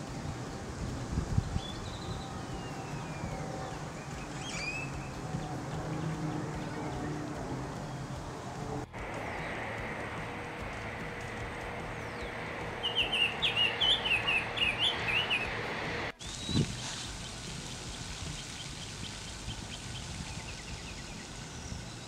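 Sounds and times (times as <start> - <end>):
outdoor background: 0.0 - 22.0
bird singing clear notes: 1.4 - 8.1, 9.0 - 22.0
faint chirping: 1.4 - 16.7.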